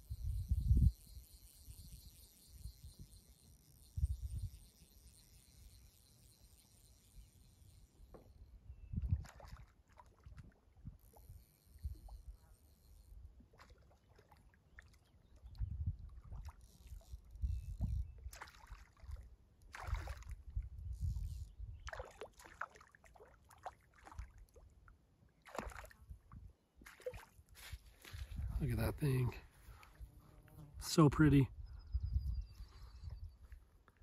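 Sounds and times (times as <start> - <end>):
water sloshing and splashing: 9.0 - 10.9, 13.5 - 17.0, 18.3 - 20.5, 21.8 - 24.8, 25.4 - 26.2, 26.8 - 28.0.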